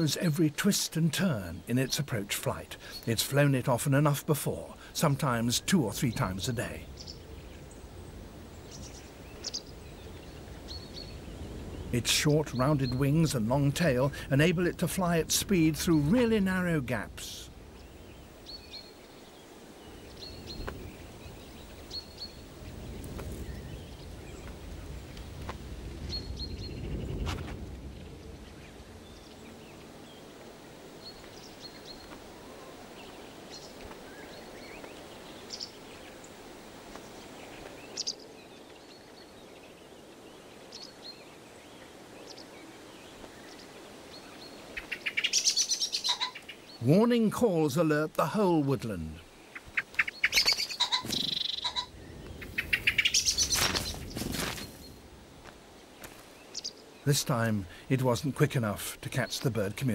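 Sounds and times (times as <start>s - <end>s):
songbirds chirping: 0.0s - 59.9s
bird alarm calls: 44.2s - 46.9s, 49.4s - 54.9s.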